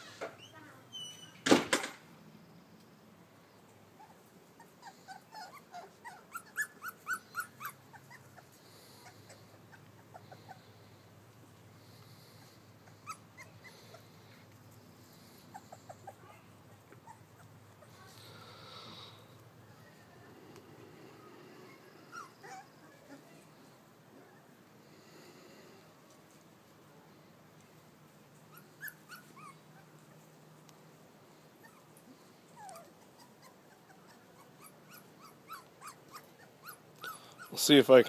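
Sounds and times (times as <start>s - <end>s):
puppies whimpering and yipping: 4.0s - 10.9s, 12.3s - 18.0s, 21.6s - 23.3s, 28.5s - 30.4s, 31.6s - 37.7s.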